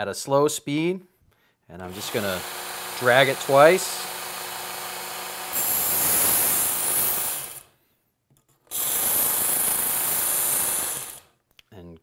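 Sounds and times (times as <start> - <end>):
belt sharpener running: 1.8 - 7.7, 8.7 - 11.3
blade grinding on abrasive belt: 1.9 - 7.7, 8.7 - 11.3.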